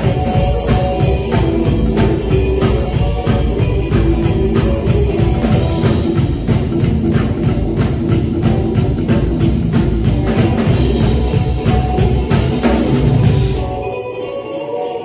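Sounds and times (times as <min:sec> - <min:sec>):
ringing guitar notes: 0:00.0 - 0:15.0
rockabilly band playing: 0:00.0 - 0:15.0.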